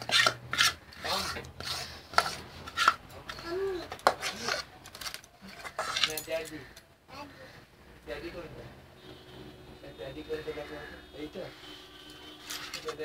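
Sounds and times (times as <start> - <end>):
hands scraping cake batter: 0.0 - 3.0.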